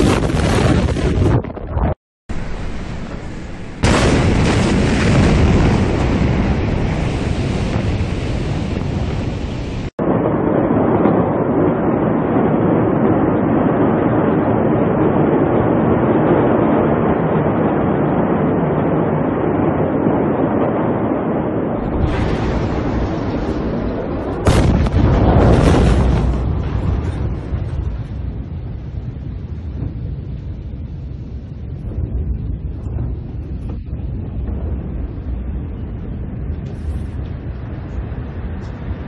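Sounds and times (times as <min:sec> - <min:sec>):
blast and fire rumbling: 0:00.0 - 0:39.0
wind buffeting microphone: 0:00.0 - 0:39.0.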